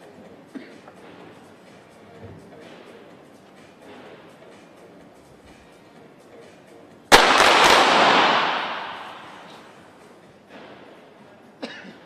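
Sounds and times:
pistols firing rapidly: 7.1 - 9.5
single sharp gunshot crack: 7.1 - 9.6.

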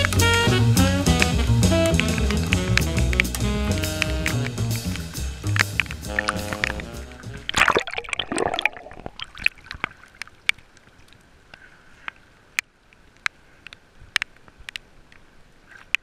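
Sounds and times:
low water hiss: 0.0 - 16.0
water sloshing and splashing: 5.8 - 11.3.

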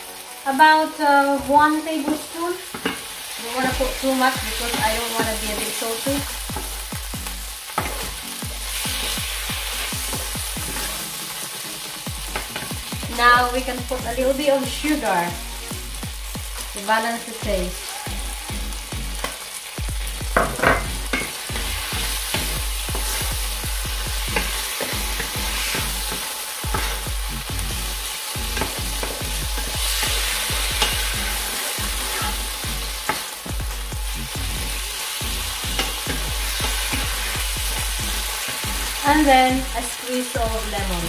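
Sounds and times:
food sizzling in a pan: 0.0 - 41.0.

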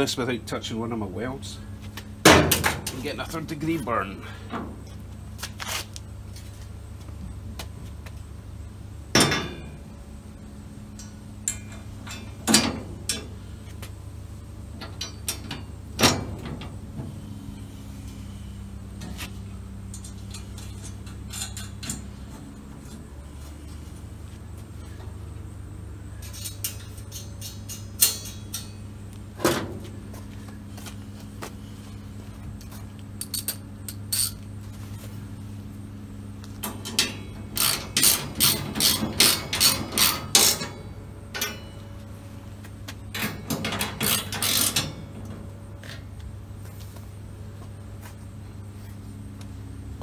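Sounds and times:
steady low hum: 0.0 - 50.0
metal door frame clanking: 2.2 - 3.0, 14.8 - 16.8.

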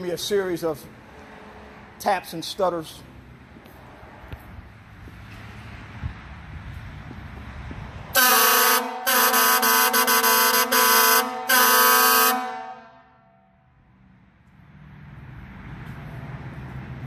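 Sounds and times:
fire engine air horn blasts: 8.2 - 13.6.

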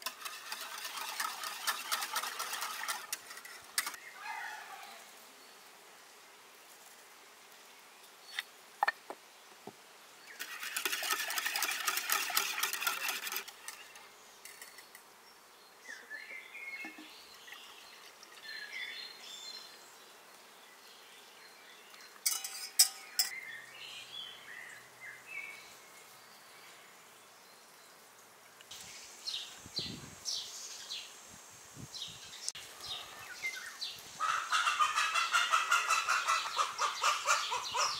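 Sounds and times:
whisk beating in metal pot: 0.0 - 3.9, 10.4 - 13.8
liquid pouring into glass jug: 10.4 - 13.4.

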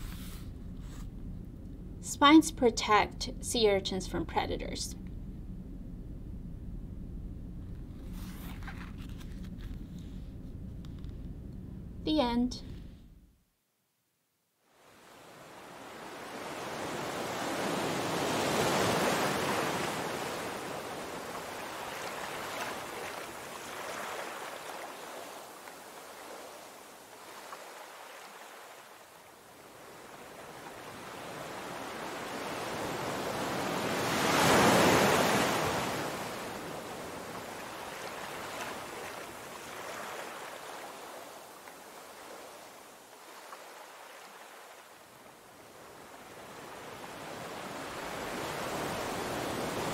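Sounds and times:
surf breaking over rocks: 32.3 - 41.1.

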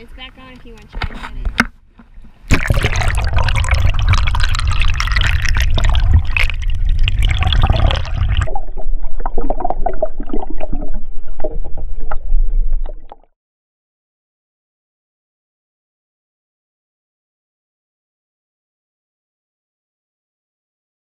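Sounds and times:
water rushing and churning: 2.5 - 13.2
underwater crackling and bubbling: 2.5 - 13.3
heavy low rumble: 2.6 - 9.2.

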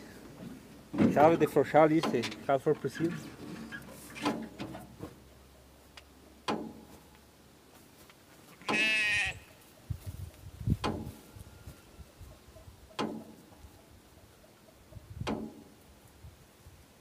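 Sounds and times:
footsteps in grass: 6.8 - 12.4
sheep bleating: 8.5 - 9.6.

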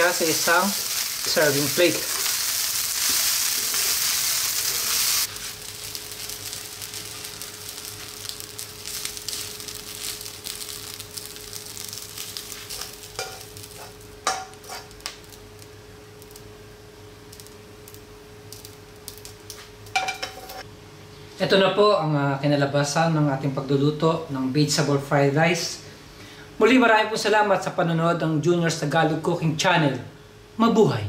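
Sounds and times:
rice sizzling in a pan: 0.0 - 20.7
spatula scraping a pan: 12.7 - 14.9.

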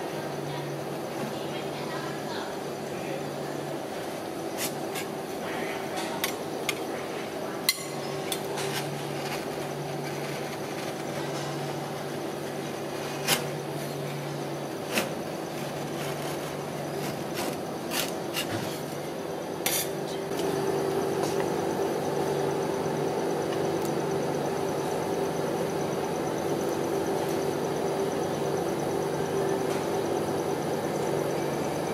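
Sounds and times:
refrigeration unit hum: 0.0 - 31.9
metal spatulas scraping and tapping: 19.6 - 20.0.

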